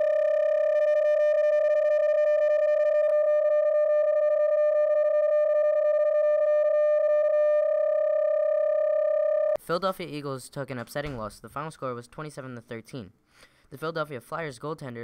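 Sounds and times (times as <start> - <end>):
steady data signal tone: 0.0 - 9.6.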